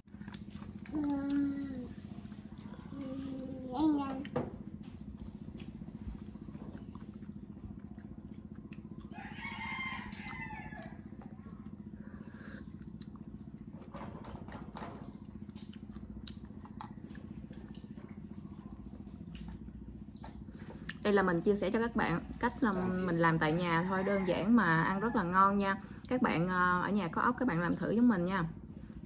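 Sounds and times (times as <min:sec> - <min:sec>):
low hum: 0:00.0 - 0:29.0
rooster crowing: 0:09.0 - 0:11.4, 0:23.6 - 0:25.7.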